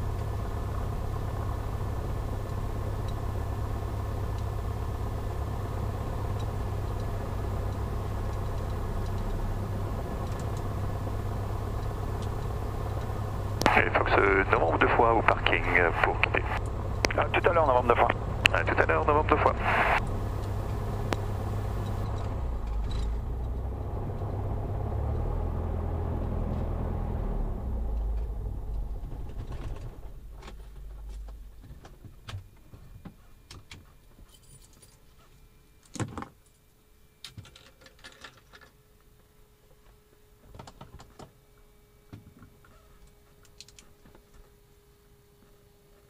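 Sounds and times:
piston engine idling: 0.0s - 31.8s
faint steady tone: 0.0s - 40.5s.

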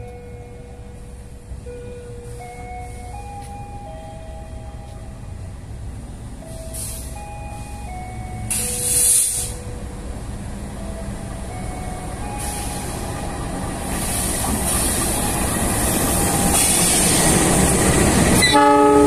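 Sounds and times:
locomotive engine rumbling: 0.0s - 19.0s
loud hiss: 8.5s - 9.6s.

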